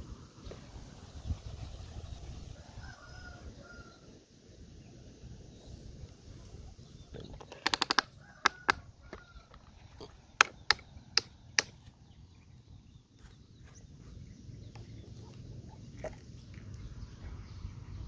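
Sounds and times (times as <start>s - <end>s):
toy excavator plastic clicks: 7.2s - 8.8s.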